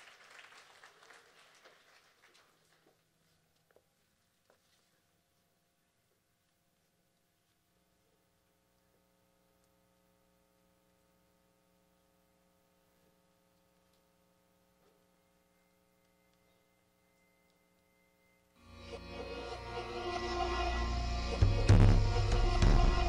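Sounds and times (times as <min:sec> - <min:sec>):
faint electrical hum: 0:00.0 - 0:21.2
music: 0:15.5 - 0:23.0.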